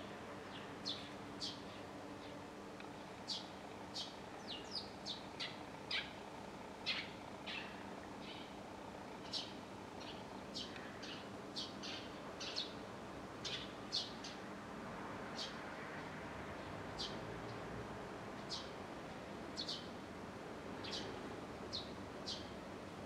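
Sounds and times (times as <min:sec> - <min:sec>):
faint background hum: 0:00.0 - 0:23.0
sparrow chirping: 0:00.5 - 0:02.4, 0:03.3 - 0:06.2, 0:06.8 - 0:08.5, 0:09.2 - 0:12.8, 0:13.4 - 0:14.4, 0:17.0 - 0:17.2, 0:19.6 - 0:19.9, 0:20.8 - 0:22.5.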